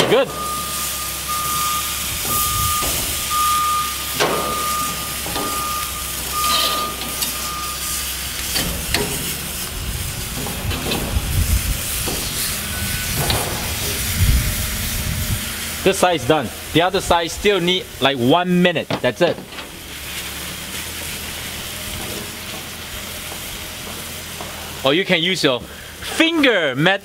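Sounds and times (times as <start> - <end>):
meat sizzling on grill: 0.1 - 26.9
wind rumble on microphone: 2.1 - 3.2, 9.7 - 15.6.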